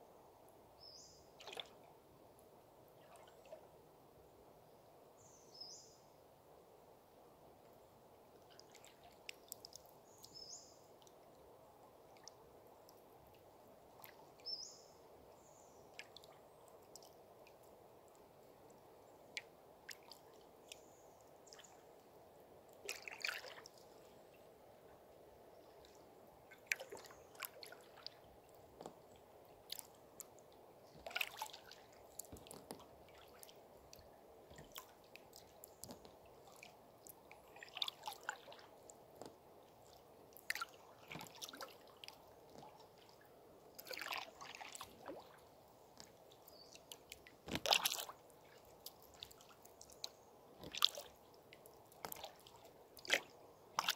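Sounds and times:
paddle splashes in water: 1.4s - 1.8s, 22.8s - 23.8s, 26.5s - 29.0s, 30.9s - 36.8s, 37.4s - 43.1s, 43.8s - 45.4s, 46.0s - 51.2s, 51.9s - 53.9s.

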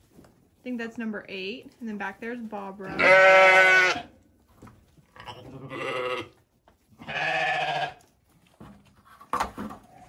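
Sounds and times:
sheep bleating: 2.9s - 4.1s, 5.3s - 6.4s, 7.0s - 8.0s.

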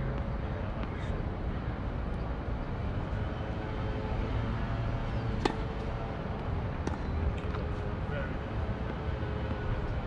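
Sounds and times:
tennis ball struck by racket: 5.4s - 5.8s, 6.8s - 7.6s.

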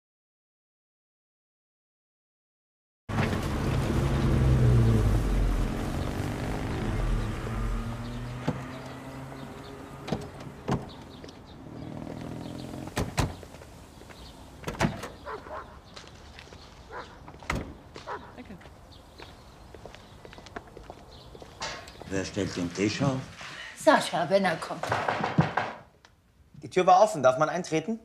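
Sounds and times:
car engine driving past: 3.1s - 14.4s
car doors clicking and thumping: 10.0s - 11.3s, 12.9s - 13.4s, 14.6s - 15.2s.

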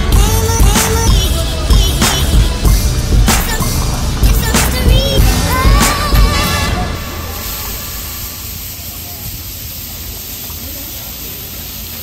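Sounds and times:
background music: 0.0s - 8.5s.

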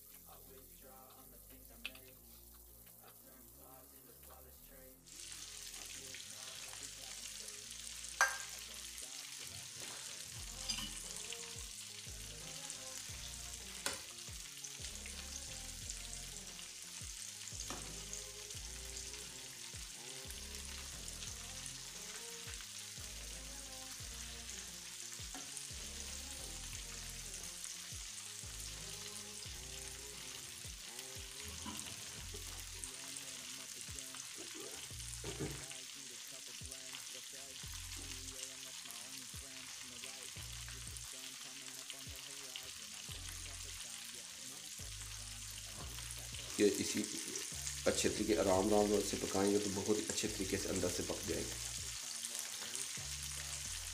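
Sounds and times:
chicken deep-frying in oil: 5.1s - 53.9s
spoon stirring in pot: 8.2s - 8.6s, 10.6s - 11.1s.

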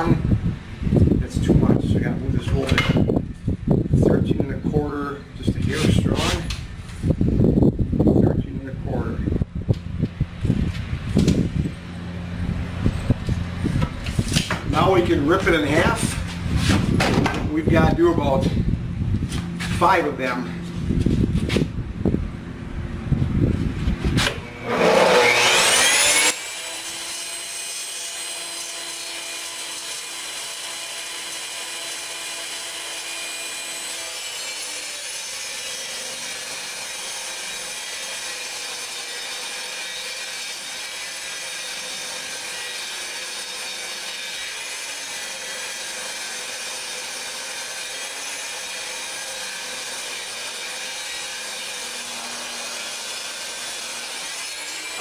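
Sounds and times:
table saw cutting wood: 5.7s - 6.6s, 11.1s - 18.6s, 24.0s - 55.0s.

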